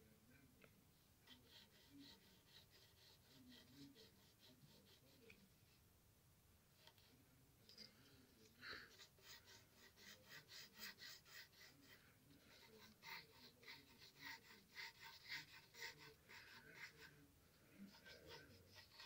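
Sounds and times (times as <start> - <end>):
pencil scratching on paper: 1.2 - 5.5, 8.6 - 19.0.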